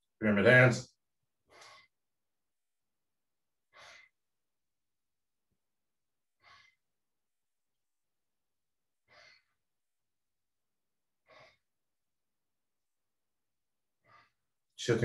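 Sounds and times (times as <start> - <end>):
man breathing: 11.2 - 11.8.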